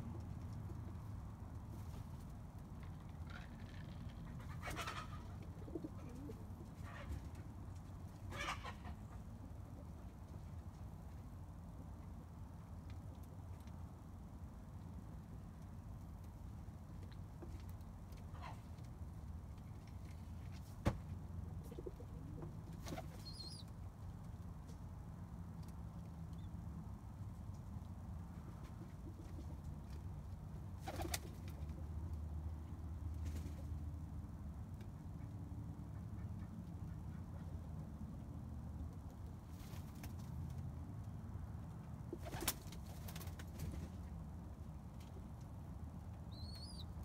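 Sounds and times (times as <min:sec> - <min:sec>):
low background hum: 0:00.0 - 0:47.0
pigeons cooing: 0:04.3 - 0:07.2.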